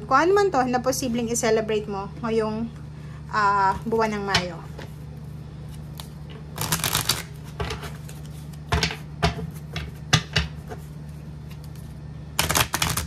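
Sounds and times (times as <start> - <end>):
cards tapping and rustling: 5.9 - 10.9, 12.4 - 13.0.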